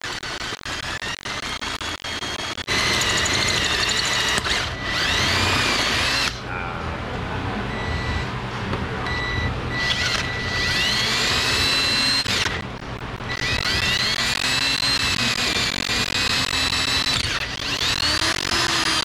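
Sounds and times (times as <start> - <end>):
drill bit squealing: 0.0 - 6.4, 9.1 - 19.0
power drill boring metal: 0.0 - 6.4, 9.7 - 12.6, 13.2 - 19.0.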